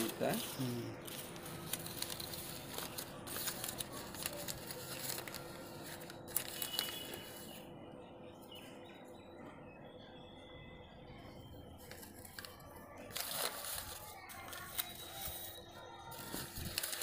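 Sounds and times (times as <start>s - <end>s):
paper rustling and crinkling: 0.0s - 7.6s, 11.8s - 17.0s.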